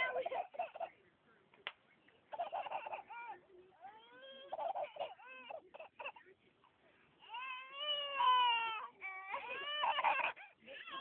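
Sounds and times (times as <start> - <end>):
toddler crying: 7.2 - 10.4.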